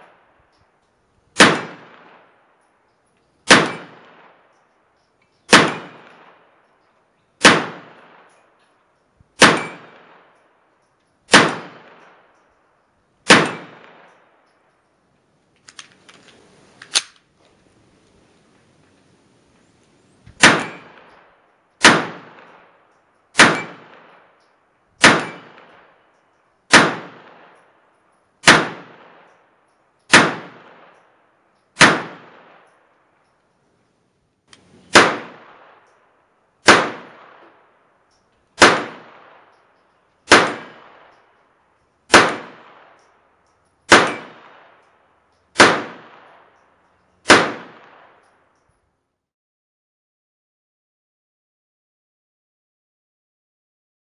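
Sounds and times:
pistol shots with echo: 1.4 - 2.6, 3.4 - 4.6, 5.5 - 6.6, 7.4 - 8.4, 9.4 - 10.4, 11.3 - 12.5, 13.2 - 14.4, 20.4 - 26.1, 26.7 - 27.7, 28.4 - 29.4, 30.1 - 31.1, 31.8 - 32.8, 34.9 - 36.0, 36.6 - 37.7, 38.6 - 41.4, 42.1 - 43.3, 43.9 - 48.3.

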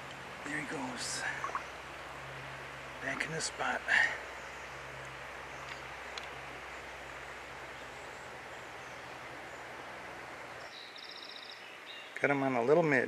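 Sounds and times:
stream water flowing: 0.0 - 13.0
bird trill: 1.1 - 1.7, 10.5 - 12.2.

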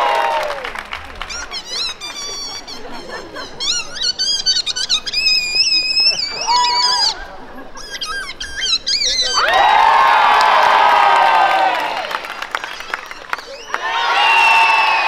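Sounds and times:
squeaky whistling: 7.8 - 9.5.

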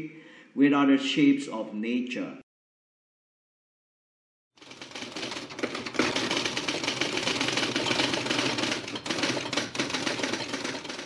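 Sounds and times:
rapid typewriter-like clattering: 4.6 - 11.0.

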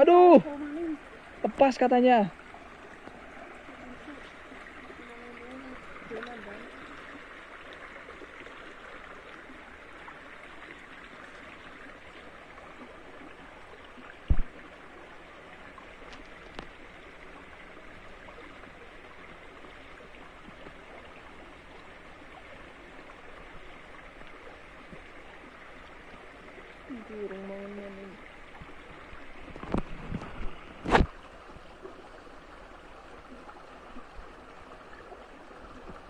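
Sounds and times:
stream trickling over rocks: 0.0 - 36.0
loud low thump: 14.3 - 14.5.

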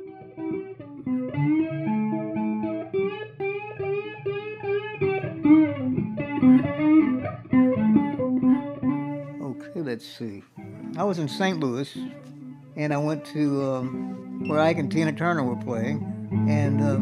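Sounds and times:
electric guitar lead with bends: 0.0 - 9.8, 10.6 - 17.0
electric guitar held low notes: 10.6 - 17.0.

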